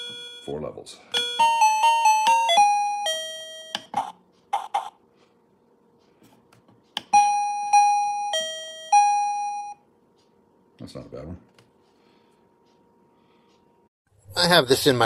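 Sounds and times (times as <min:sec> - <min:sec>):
electronic doorbell chime: 0:00.0 - 0:00.5, 0:01.1 - 0:03.9, 0:07.1 - 0:09.8.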